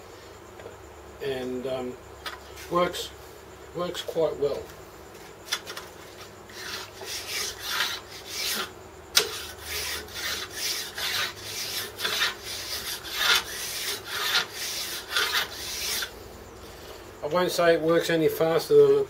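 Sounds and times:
file rasping on metal: 6.5 - 16.1.

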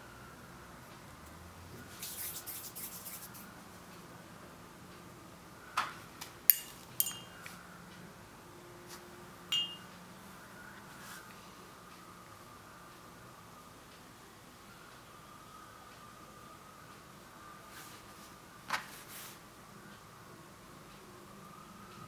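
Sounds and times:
fingers rubbing fondant: 2.0 - 3.5.

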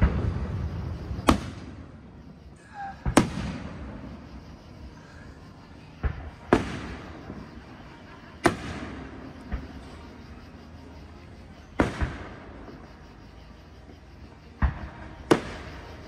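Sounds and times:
fireworks bangs with echo: 0.0 - 2.0, 2.9 - 4.3, 5.9 - 7.5, 8.4 - 9.9, 11.8 - 12.6, 14.6 - 16.0.

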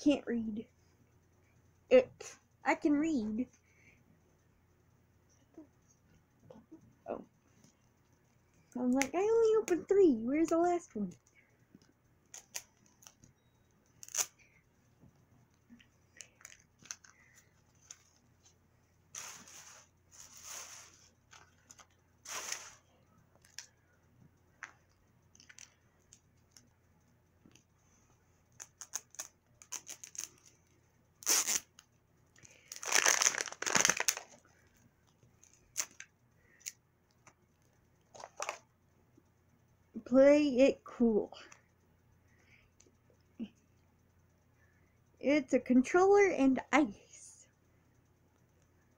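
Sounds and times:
wrapper tearing and crinkling: 14.0 - 14.3, 28.6 - 30.5, 31.2 - 31.8, 32.7 - 34.4.

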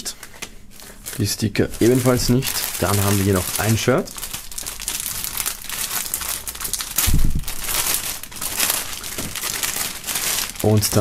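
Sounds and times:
plastic bag crinkling: 0.2 - 11.0
low bump: 7.0 - 7.7.

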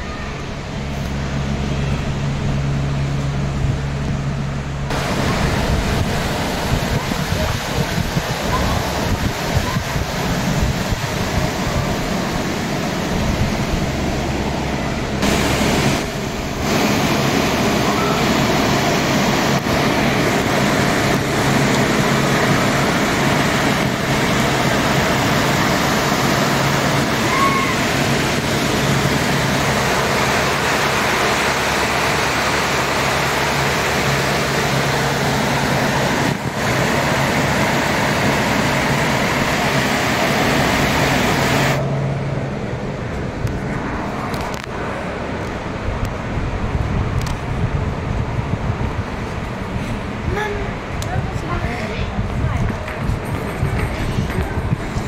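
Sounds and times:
low steady hum: 0.0 - 55.0
river rushing over stones: 4.9 - 13.2.

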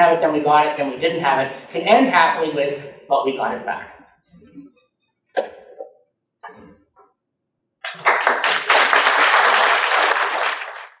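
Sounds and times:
audience applauding: 7.8 - 11.0.

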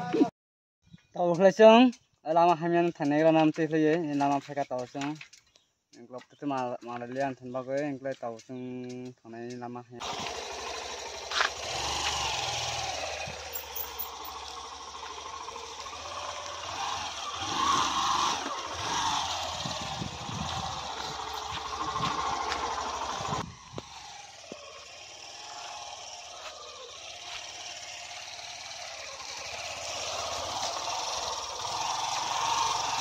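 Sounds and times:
motorcycle engine running: 8.8 - 33.0.

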